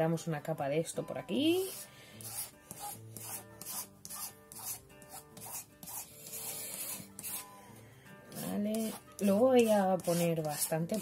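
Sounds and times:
soft background music: 0.0 - 11.0
applicator rubbing on paper: 1.6 - 7.5, 8.3 - 11.0.

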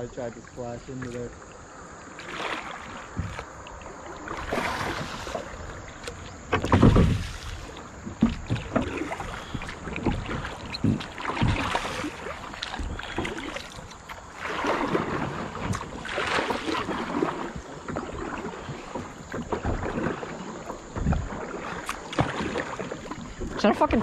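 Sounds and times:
paddle splashing in water: 0.0 - 24.0
water running off paddle: 0.0 - 24.0.

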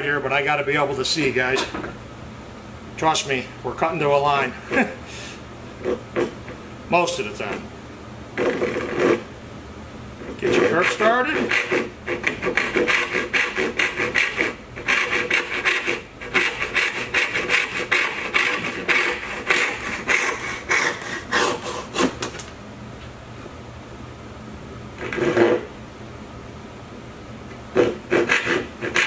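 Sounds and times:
hand saw cutting wood: 8.4 - 9.2, 10.3 - 22.3, 25.0 - 25.7, 27.8 - 29.0.

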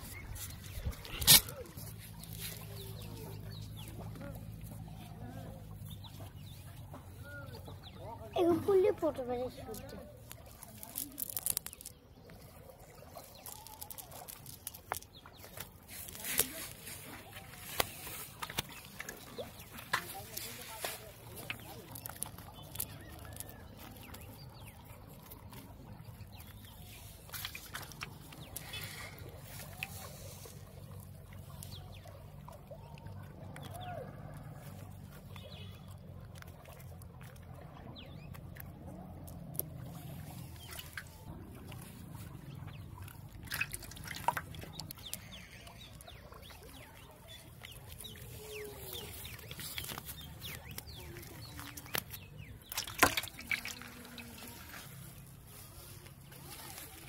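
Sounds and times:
net rustling over dry leaves: 10.2 - 12.0, 13.2 - 24.2, 47.8 - 57.0.

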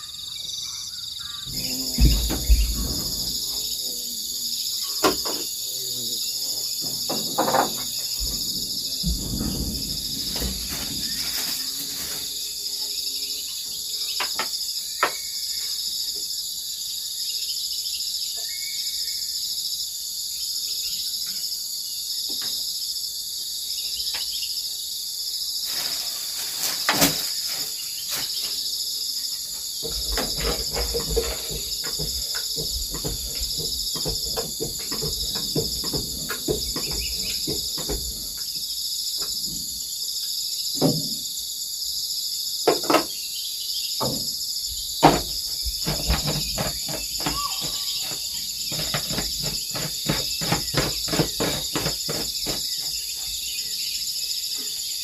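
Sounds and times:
high-pitched insect chorus: 0.0 - 55.0
sprayer tank knocks: 1.4 - 3.9, 4.9 - 5.6, 6.7 - 12.1, 29.8 - 38.6, 40.8 - 41.3, 42.7 - 43.2, 44.0 - 44.4, 45.0 - 53.0
plastic bottles knocking: 1.5 - 3.6, 6.8 - 12.1, 29.8 - 38.5, 42.7 - 43.1, 45.0 - 53.0.

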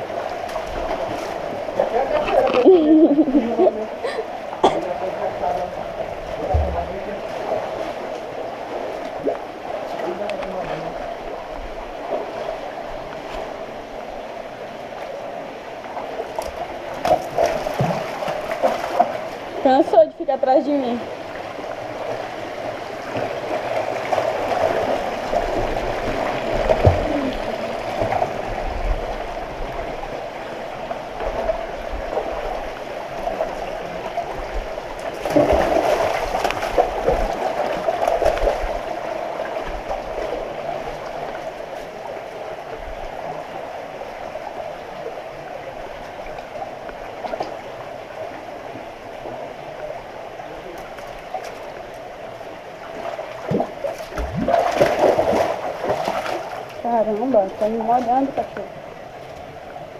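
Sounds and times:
stream water gurgling over rock: 0.0 - 59.9
wading steps splashing in water: 15.9 - 20.0, 21.3 - 29.9, 30.8 - 42.2, 50.6 - 59.6.

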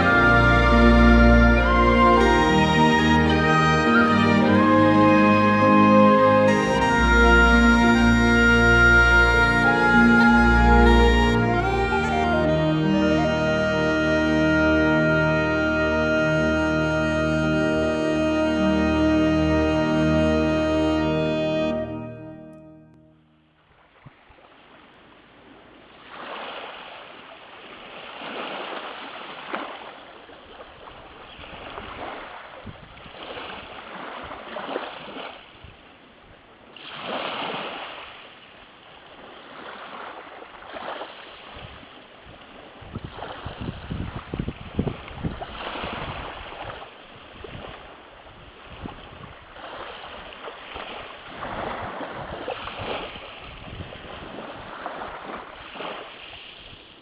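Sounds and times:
small waves lapping on beach: 23.7 - 57.0.

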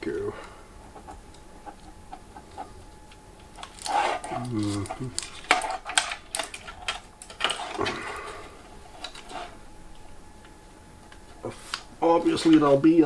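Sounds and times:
plastic clicks and rustling: 3.1 - 8.0.

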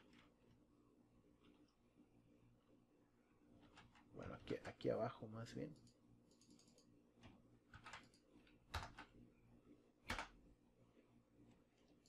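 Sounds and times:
keyboard keys clicking: 7.8 - 9.1, 10.1 - 10.3.

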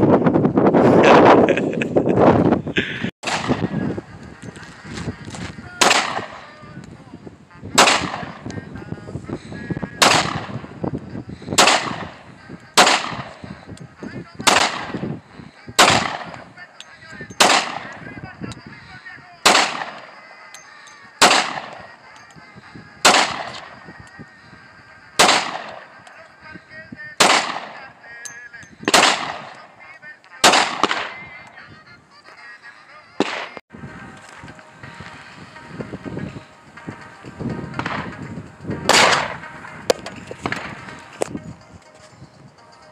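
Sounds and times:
handgun shots with echo: 3.2 - 3.7, 5.8 - 6.4, 7.8 - 8.4, 10.0 - 10.6, 11.6 - 12.2, 12.8 - 13.4, 14.4 - 15.0, 15.8 - 16.4, 17.4 - 18.0, 19.4 - 20.1, 21.2 - 21.9, 23.0 - 23.7, 25.2 - 25.8, 27.2 - 27.8, 28.9 - 29.6, 30.4 - 31.2, 33.2 - 33.6, 38.9 - 40.7.

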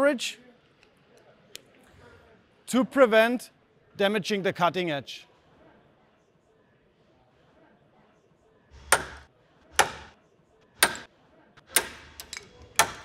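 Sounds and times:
hammer striking chisel: 8.8 - 10.2, 10.8 - 13.0.

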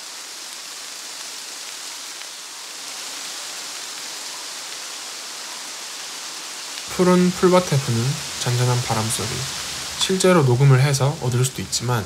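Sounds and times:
wind through grass and leaves: 0.0 - 12.0.

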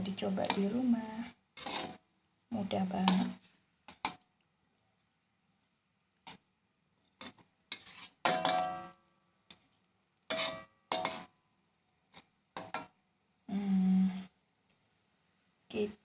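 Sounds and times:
metal spoon scraping metal pan: 0.3 - 0.8, 1.6 - 2.0, 3.0 - 3.4, 7.2 - 9.0, 10.3 - 11.3.

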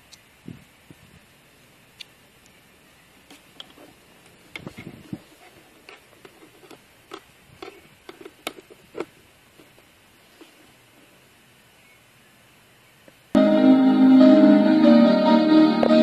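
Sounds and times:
faint steady hiss: 0.0 - 16.0
small plastic parts clicking: 5.8 - 9.8.

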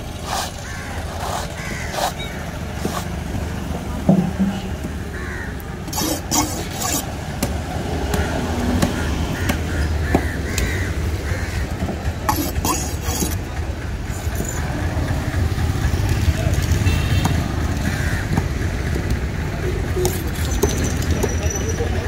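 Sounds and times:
road traffic rumble: 0.0 - 22.0
cleaver chopping on wood: 7.4 - 10.7.

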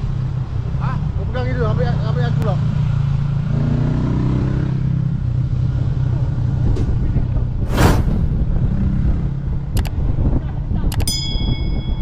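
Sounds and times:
loud rush of noise: 7.6 - 8.8.

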